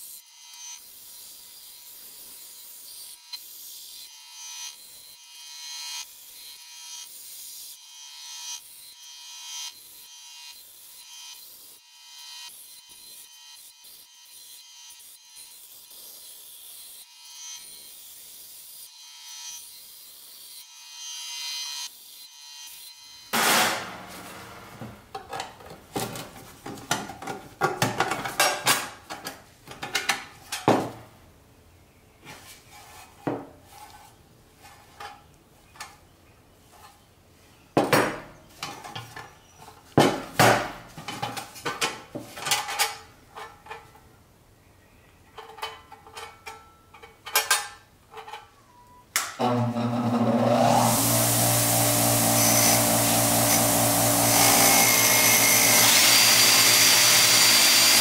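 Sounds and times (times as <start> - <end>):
bandsaw cutting sheet metal: 0.0 - 25.1, 49.4 - 58.0
sheet metal knocks and clanks: 23.4 - 26.2.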